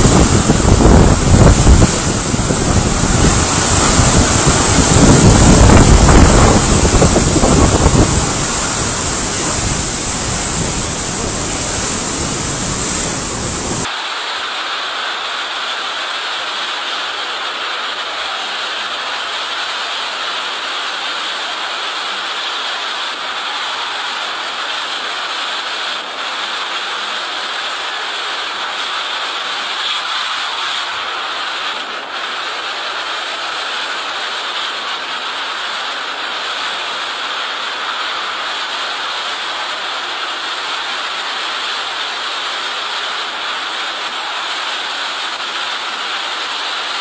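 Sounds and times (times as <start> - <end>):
strong wind buffeting microphone: 0.0 - 13.9
driving rain hiss: 0.0 - 47.0.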